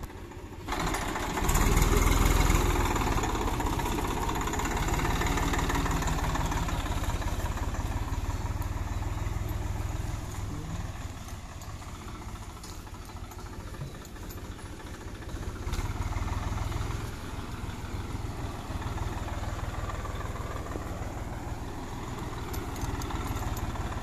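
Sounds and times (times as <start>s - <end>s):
tractor diesel engine running: 0.0s - 24.0s
rotary tiller churning: 0.7s - 17.2s.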